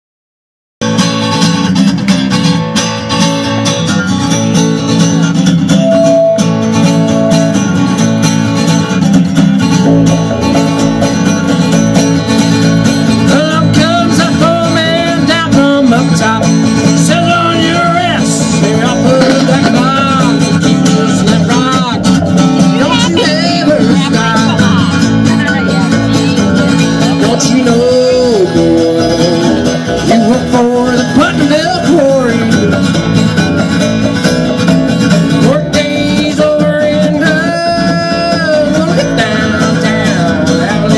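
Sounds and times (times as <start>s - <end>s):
acoustic guitar strumming: 0.8s - 40.9s
plucked double bass: 0.8s - 40.9s
man singing: 13.2s - 33.0s, 35.2s - 40.9s.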